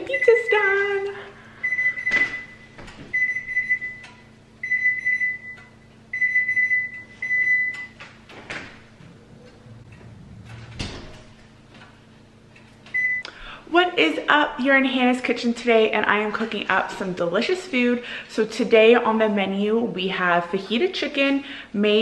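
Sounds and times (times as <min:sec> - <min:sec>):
appliance electronic beeps: 0:00.0 - 0:08.0, 0:12.8 - 0:13.4.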